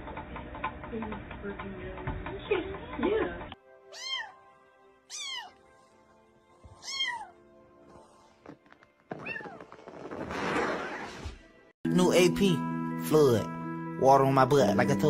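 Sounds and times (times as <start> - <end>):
cat meowing: 3.9 - 4.4, 5.1 - 5.6, 6.8 - 7.4, 9.1 - 9.6.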